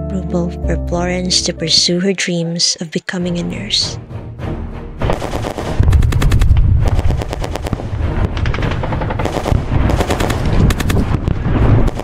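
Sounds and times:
low rumble: 0:05.0 - 0:12.0
machine-gun fire: 0:05.0 - 0:12.0.

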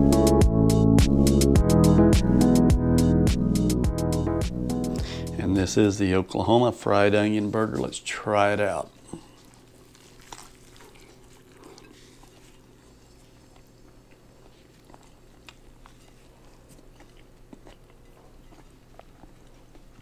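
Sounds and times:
steady low hum: 0:00.0 - 0:20.0
biting into a burger: 0:09.0 - 0:20.0.

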